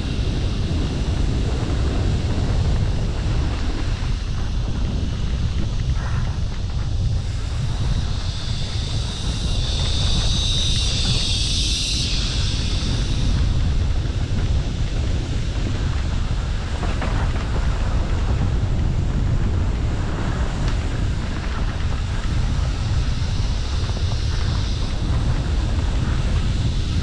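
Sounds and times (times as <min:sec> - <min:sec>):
mountain bike rumbling on trail: 0:00.0 - 0:27.0
wind buffeting microphone: 0:00.0 - 0:27.0.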